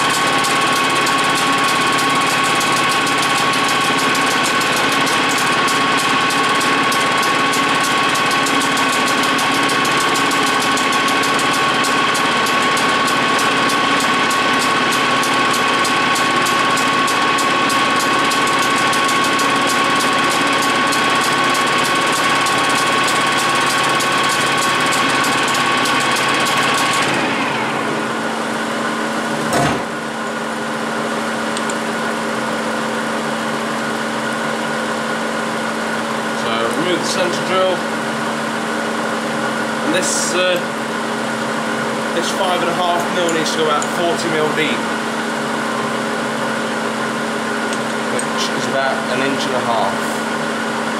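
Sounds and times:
gearing clatter: 0:00.0 - 0:27.8
lathe running with whine: 0:00.0 - 0:50.9.

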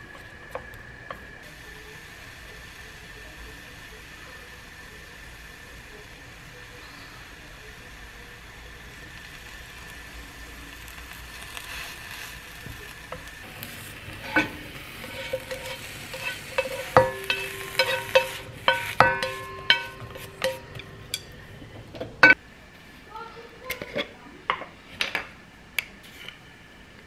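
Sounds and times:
spoon clinking against glass jar: 0:14.2 - 0:21.4.

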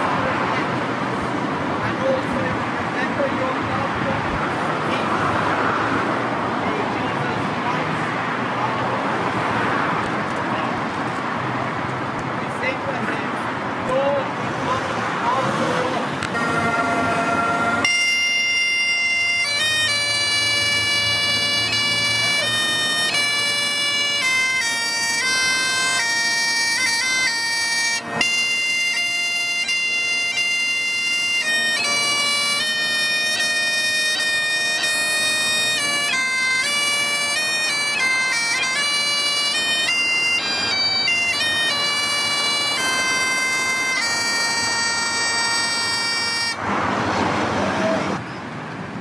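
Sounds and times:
bagpipes playing: 0:16.2 - 0:48.2.

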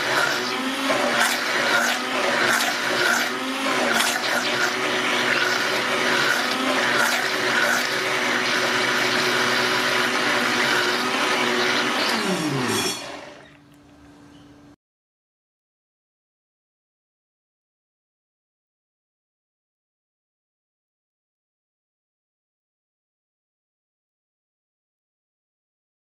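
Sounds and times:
blender motor winding down: 0:00.0 - 0:13.6
electric blender running: 0:00.0 - 0:13.6.

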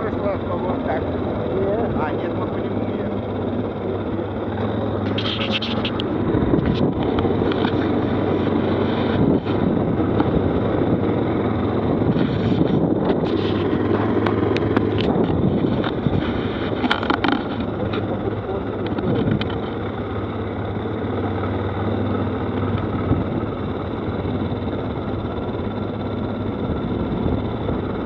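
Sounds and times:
quad bike engine running: 0:00.0 - 0:28.0
rumble of riding noise: 0:00.0 - 0:28.0
sharp clicks: 0:13.0 - 0:16.0.

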